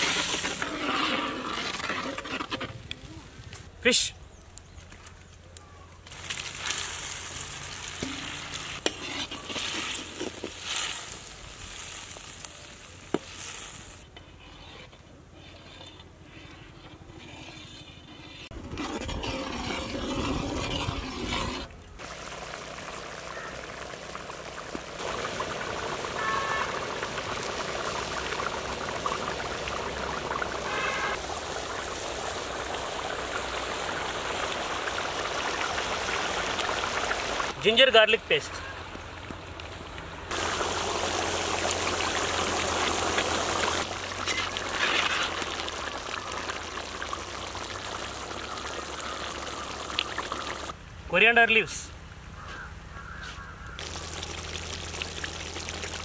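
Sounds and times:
curry bubbling with hiss: 0:06.0 - 0:14.1, 0:20.3 - 0:50.8, 0:52.5 - 0:56.0
ladle stirring curry: 0:08.0 - 0:10.6, 0:14.2 - 0:21.7.

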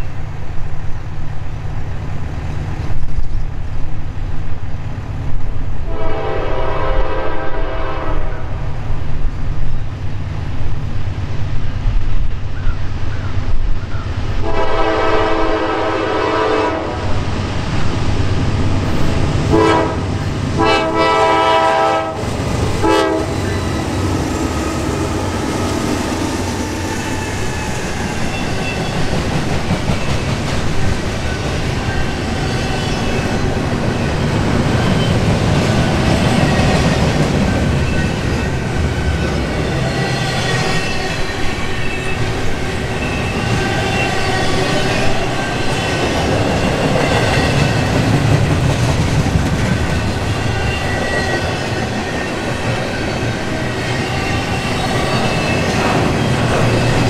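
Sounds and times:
train wheels rumbling on rail: 0:00.0 - 0:57.0
high wheel squeal: 0:23.2 - 0:29.3, 0:31.2 - 0:48.0, 0:49.9 - 0:57.0.

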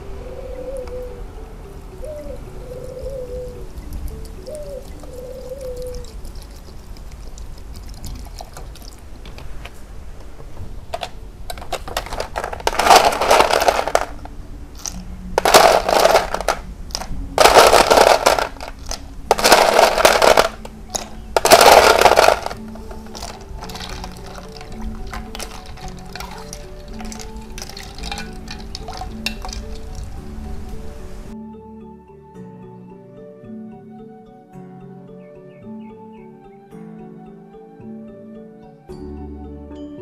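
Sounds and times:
ice cubes splashing into water: 0:05.6 - 0:09.1, 0:11.0 - 0:30.2.

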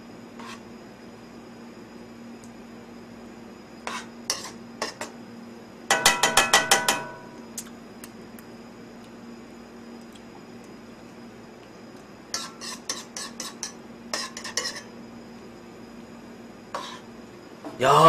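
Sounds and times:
faint steady hum: 0:00.0 - 0:18.0
metal spoon clinking on pan: 0:05.9 - 0:07.3.

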